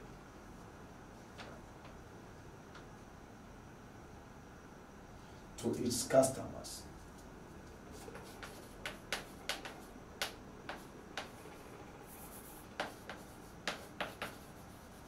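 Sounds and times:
chalk tapping on blackboard: 0:07.9 - 0:15.0.

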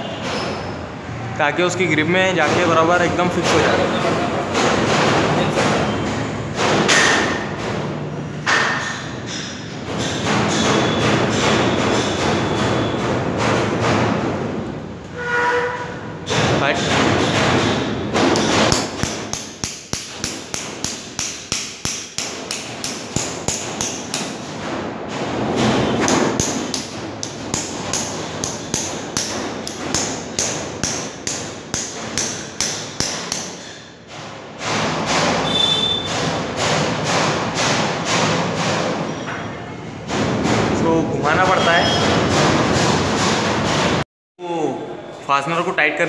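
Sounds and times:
hammer tapping metal fastener: 0:16.3 - 0:39.0.

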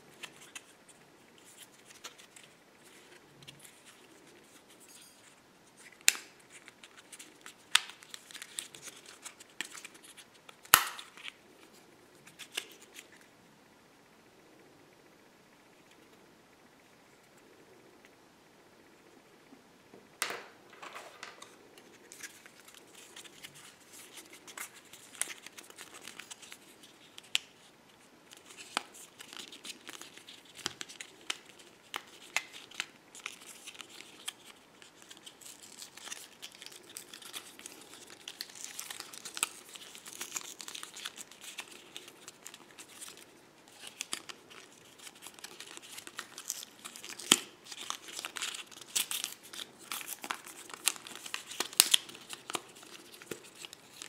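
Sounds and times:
packaging crinkling and tearing: 0:05.8 - 0:11.4, 0:21.4 - 0:27.7, 0:28.3 - 0:54.0.

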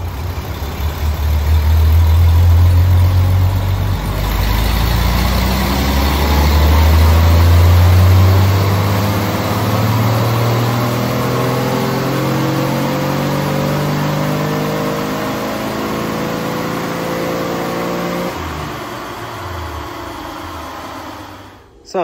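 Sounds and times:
engine revving under load: 0:00.0 - 0:21.8.

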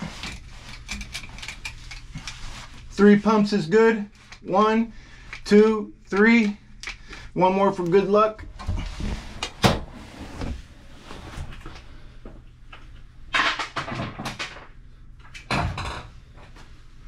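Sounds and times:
rustling scrapes: 0:08.8 - 0:11.7.

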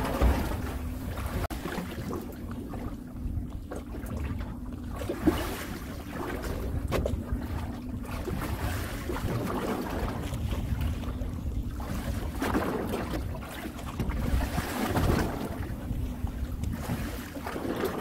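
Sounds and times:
boat engine droning: 0:00.0 - 0:18.0
wind rumble on microphone: 0:00.0 - 0:18.0.

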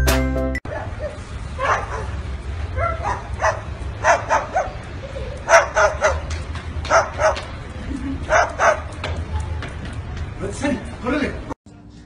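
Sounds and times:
cockatoo barking: 0:00.7 - 0:06.3, 0:06.9 - 0:07.5, 0:08.3 - 0:08.9.

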